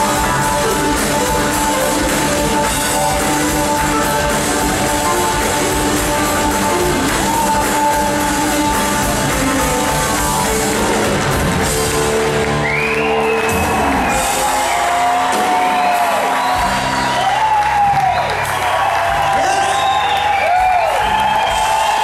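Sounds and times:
live rock band playing: 0.0s - 22.0s.

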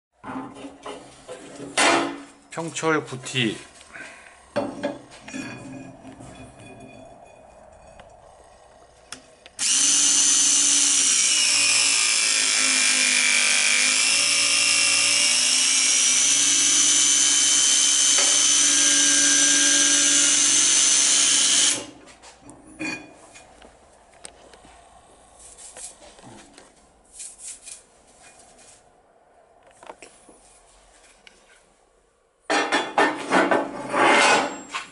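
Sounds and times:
hydraulic hole punch whine: 9.1s - 22.0s.

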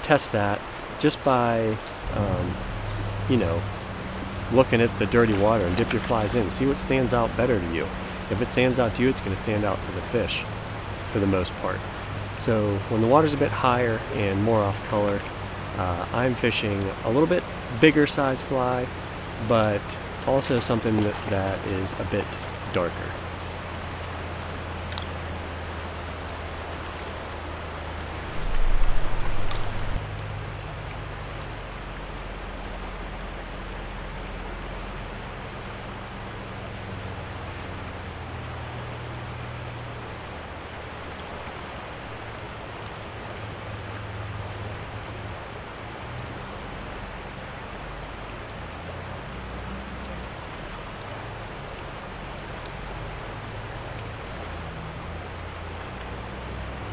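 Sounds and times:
river rushing over riffles: 0.0s - 56.9s
low rumble: 2.0s - 7.4s.

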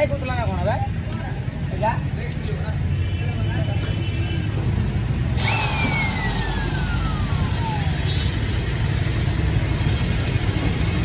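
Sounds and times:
traffic rumble: 0.0s - 11.0s
high whine gliding down: 5.4s - 8.2s.

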